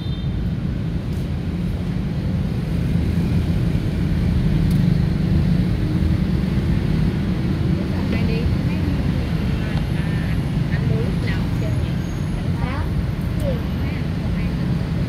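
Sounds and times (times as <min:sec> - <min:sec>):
low rumble of motor traffic: 0:00.0 - 0:15.0.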